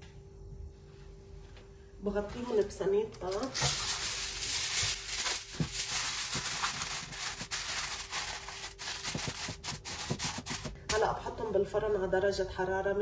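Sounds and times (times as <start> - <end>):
aluminium foil crinkling: 3.2 - 10.8.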